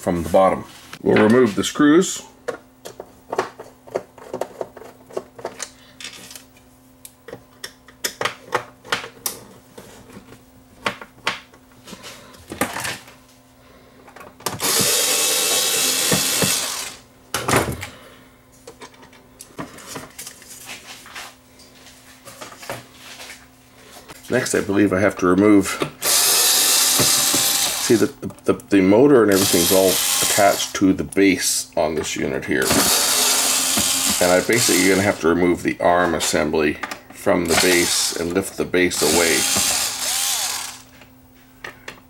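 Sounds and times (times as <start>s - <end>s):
cordless drill running: 14.6s - 17.0s, 26.0s - 28.1s, 29.3s - 30.7s, 32.6s - 35.2s, 37.4s - 38.3s, 38.9s - 40.9s
screws and tools clicking: 14.6s - 17.0s, 26.0s - 28.0s, 29.3s - 30.7s, 32.6s - 35.0s, 39.0s - 40.9s.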